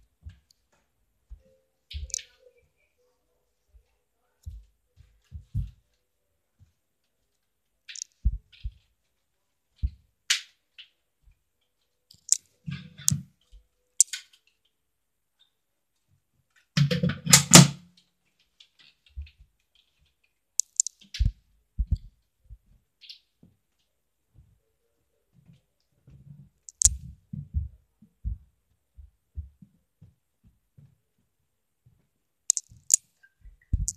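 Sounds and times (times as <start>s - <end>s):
toy blasters clicking: 20.6s - 20.9s.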